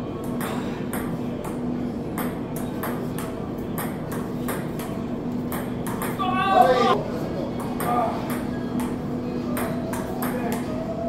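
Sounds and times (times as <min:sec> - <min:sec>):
table tennis ball bouncing on table: 0:02.2 - 0:06.2.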